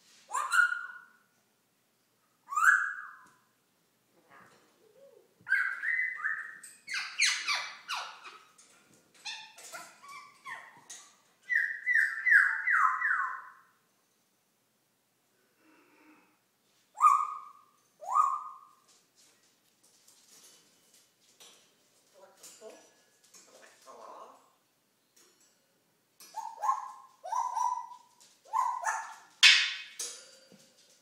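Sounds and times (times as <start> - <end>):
parrot whistling and squawking: 0.3 - 1.1, 2.5 - 3.2, 5.4 - 8.4, 11.5 - 13.6, 17.0 - 18.7, 26.3 - 29.8.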